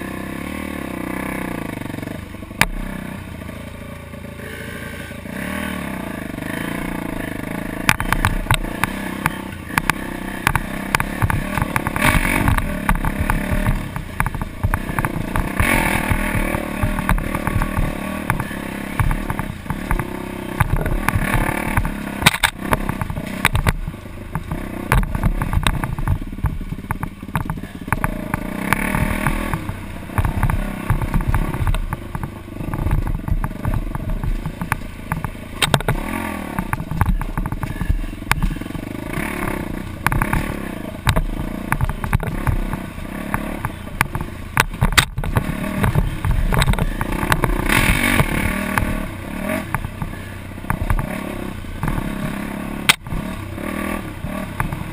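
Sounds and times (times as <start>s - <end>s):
dirt bike engine revving: 0.0s - 54.9s
knocks and buffeting on microphone: 9.8s - 38.8s, 39.9s - 51.1s.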